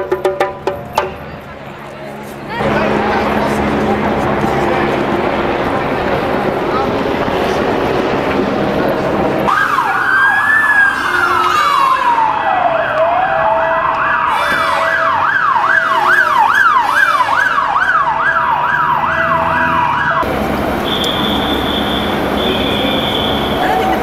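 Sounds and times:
siren wailing: 0:09.4 - 0:24.0
siren yelping rapidly: 0:09.5 - 0:20.2.

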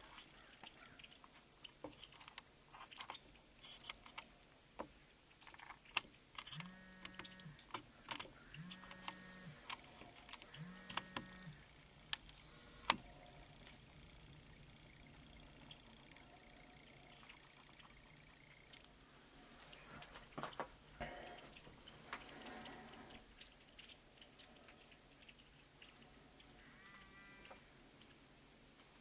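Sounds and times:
camcorder clicks and handling: 0:05.9 - 0:11.3
zoom motor whine: 0:06.4 - 0:18.9.

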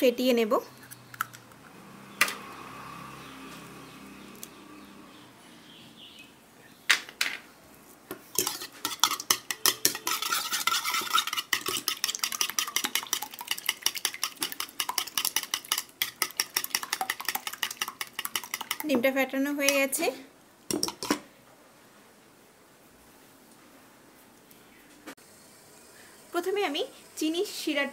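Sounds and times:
wire whisk beating eggs: 0:08.3 - 0:19.0.

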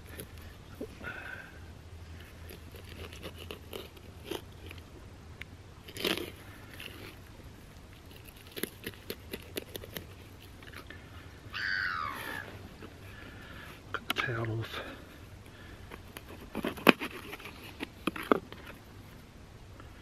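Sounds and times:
high falling call: 0:11.5 - 0:12.6.

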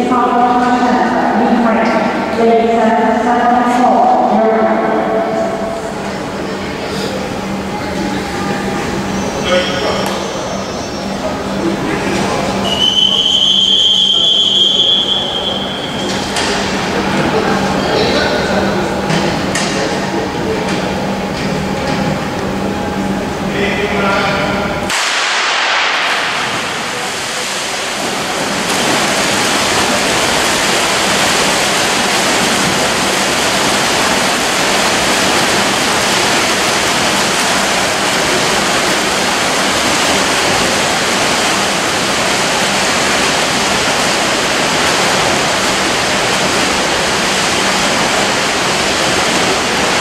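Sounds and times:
swimmers splashing water: 0:00.0 - 0:50.0.

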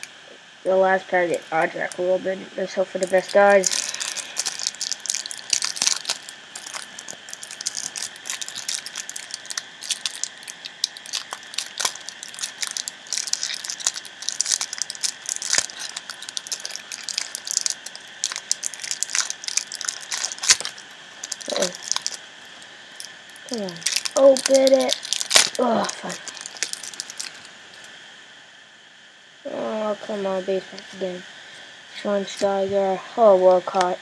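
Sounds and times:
foil packet crinkling and tearing: 0:03.0 - 0:27.9.

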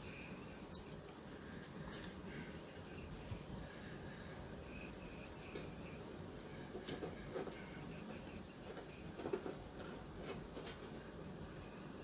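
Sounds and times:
small metallic clicks: 0:00.7 - 0:02.2.

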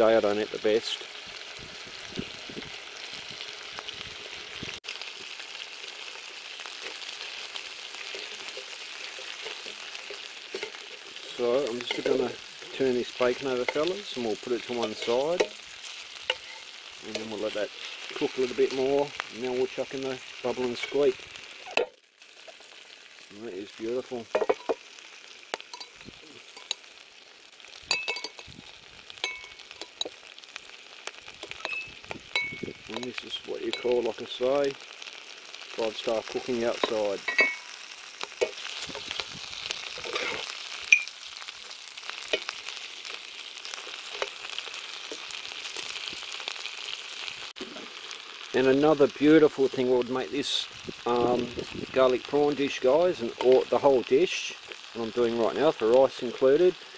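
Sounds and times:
prawns and bacon sizzling in oil: 0:00.0 - 0:56.9
metal tongs clinking on glass bowl: 0:27.9 - 0:28.4, 0:37.3 - 0:37.7.

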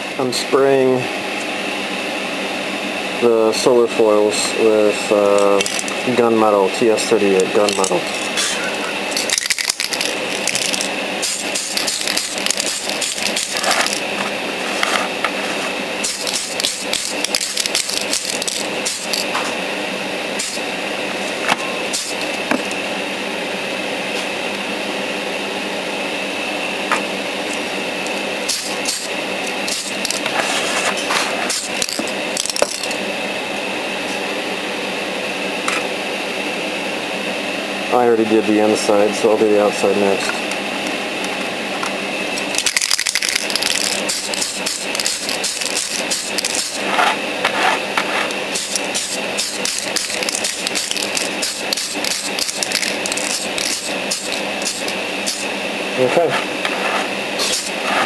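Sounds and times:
extractor fan droning: 0:00.0 - 0:58.0
handling clicks: 0:07.4 - 0:08.4
aerosol spray bursts: 0:11.2 - 0:13.6, 0:16.0 - 0:19.3, 0:28.5 - 0:30.1, 0:43.7 - 0:46.8, 0:48.5 - 0:55.5, 0:57.4 - 0:57.8.

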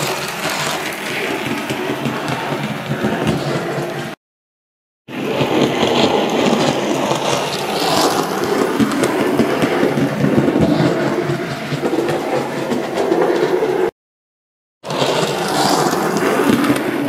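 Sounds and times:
model train motor and wheel noise: 0:00.0 - 0:04.2, 0:05.1 - 0:13.9, 0:14.9 - 0:17.0.

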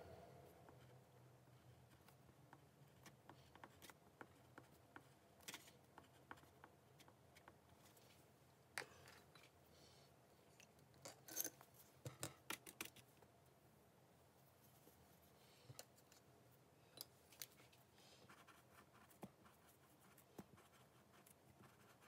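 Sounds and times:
crayon scratching on paper: 0:18.3 - 0:22.0.

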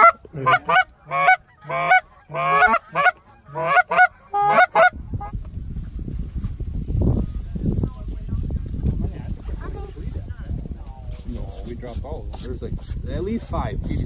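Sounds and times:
goose honking: 0:00.0 - 0:05.3.

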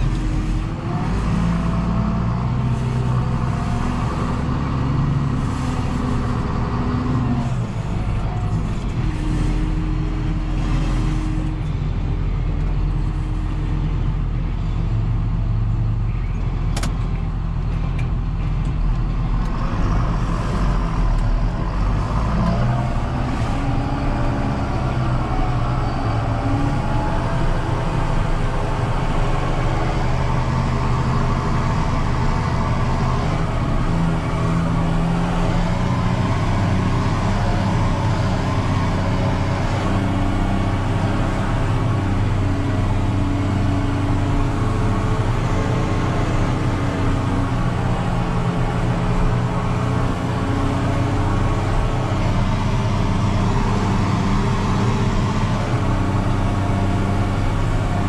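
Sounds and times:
tractor diesel engine running: 0:00.0 - 0:58.0
sharp click: 0:16.7 - 0:17.1.

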